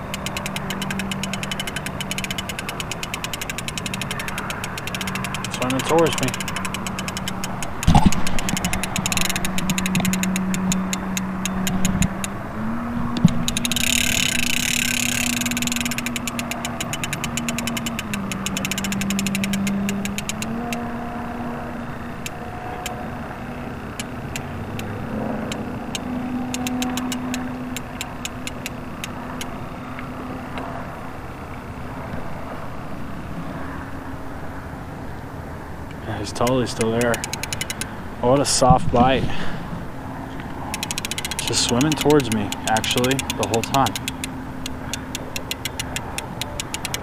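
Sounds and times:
fast even ticking: 0.0 - 12.4, 13.2 - 20.9, 24.0 - 29.5, 36.3 - 38.0, 40.6 - 47.0
motor running: 0.0 - 21.1, 21.9 - 29.5, 40.7 - 47.0.

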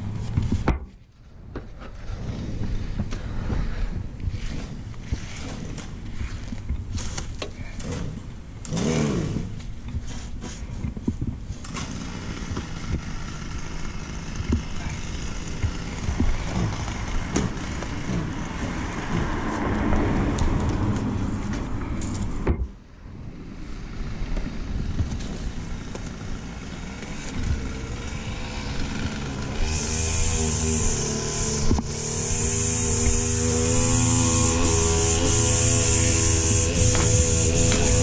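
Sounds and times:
cutting wheel grinding stump: 1.8 - 22.8, 23.7 - 38.0
gasoline engine running hard: 11.6 - 19.4, 25.6 - 38.0
cutter knocks: 36.8 - 38.0.

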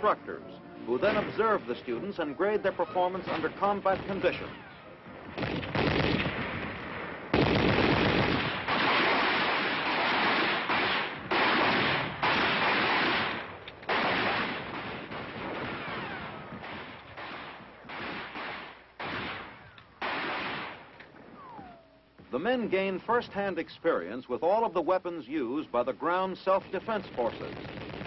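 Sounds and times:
machine-gun fire bursts: 5.4 - 6.4, 7.3 - 20.9, 27.0 - 28.0.

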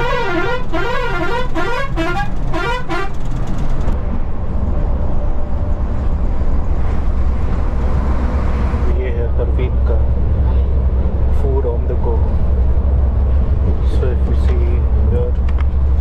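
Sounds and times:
vehicle horn warbling: 0.0 - 3.2
bus engine rumble: 0.0 - 16.0.

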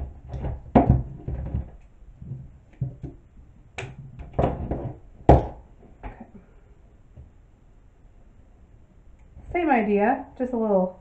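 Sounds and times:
rope and clothespins knocking and rustling: 0.0 - 3.2.

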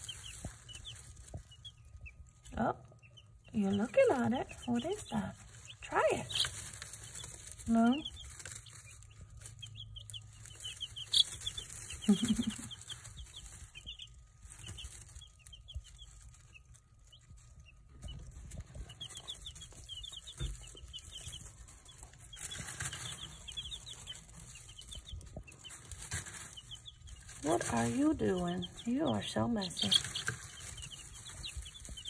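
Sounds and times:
baby chicks peeping: 0.0 - 32.0.

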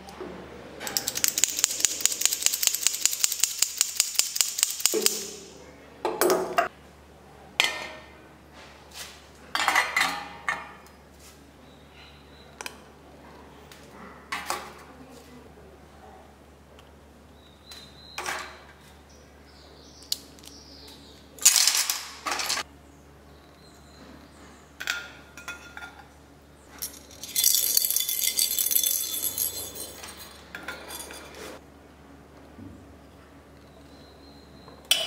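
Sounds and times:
bowls clinking and clattering: 9.5 - 10.8, 24.8 - 26.1, 26.8 - 31.6.

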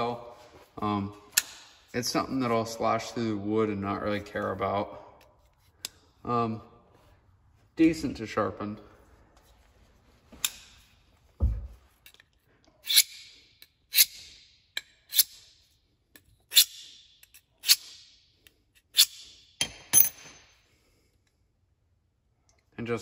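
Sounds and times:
knife scraping on sharpening rod: 12.8 - 13.3, 15.0 - 15.6, 16.5 - 18.1, 18.8 - 19.4.

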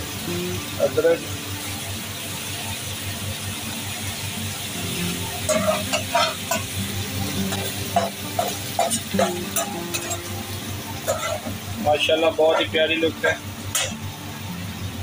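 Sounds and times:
food sizzling on iron griddle: 0.0 - 15.0
spatula scraping griddle: 5.4 - 14.1.

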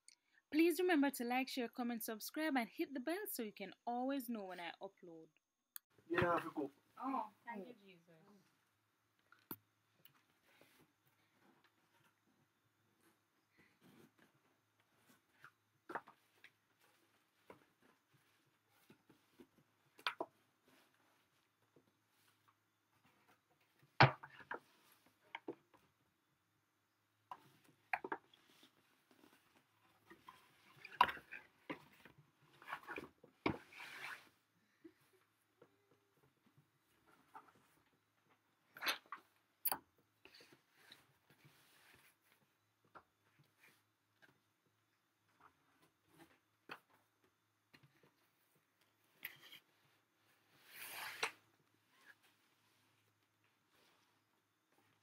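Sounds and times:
cardboard rustling slide: 28.4 - 34.4, 49.0 - 53.0.

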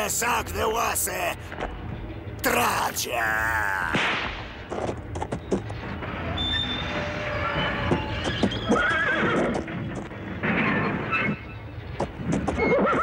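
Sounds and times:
horse whinnying: 7.8 - 9.6, 12.6 - 13.0.

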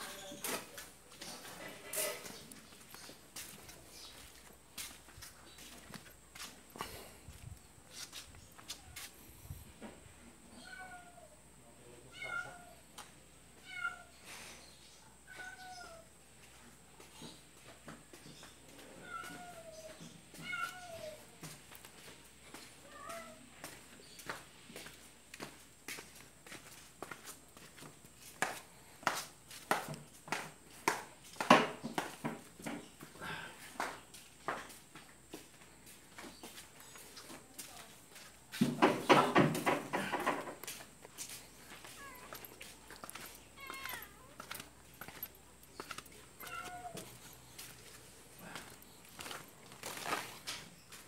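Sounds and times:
footsteps on tiled steps: 0.0 - 9.6, 15.3 - 51.0
cat meowing: 10.5 - 11.3, 12.1 - 12.8, 15.3 - 16.0, 19.0 - 21.2, 43.6 - 44.4, 46.4 - 47.1.

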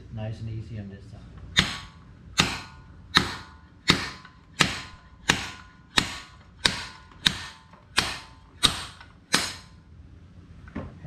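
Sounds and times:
ringing metal-on-metal hammer blows: 1.6 - 9.8.

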